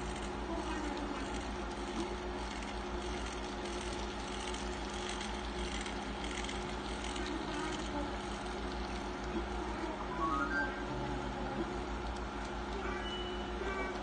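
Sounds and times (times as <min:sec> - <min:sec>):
model train motor humming: 0:00.0 - 0:09.9
model cars rolling on rails: 0:00.1 - 0:09.0.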